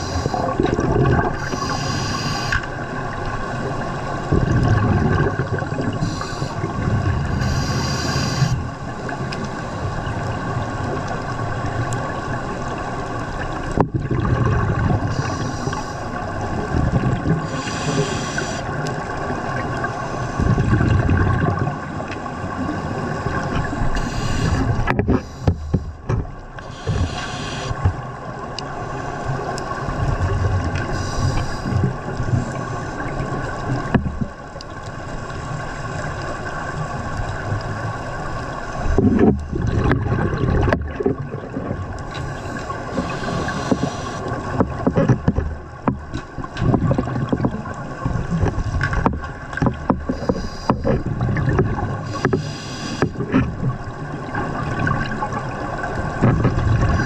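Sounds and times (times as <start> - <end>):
regulator inhalation hiss: 0.0 - 0.4, 1.4 - 2.7, 6.0 - 6.7, 7.4 - 8.6, 15.1 - 16.1, 17.5 - 18.7, 23.9 - 25.7, 26.6 - 27.8, 30.9 - 31.7, 42.4 - 44.2, 50.2 - 50.8, 52.1 - 53.1
bubbles rumbling and gurgling: 0.0 - 57.0.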